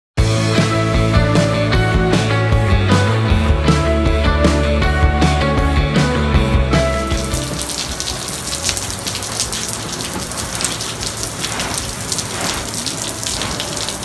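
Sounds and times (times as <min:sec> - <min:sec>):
broth boiling in a pot: 0:07.6 - 0:14.0.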